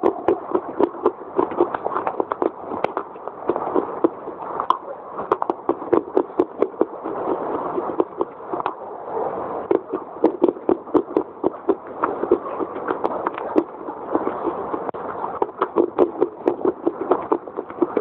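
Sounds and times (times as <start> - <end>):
crunching and chewing: 0.0 - 8.8.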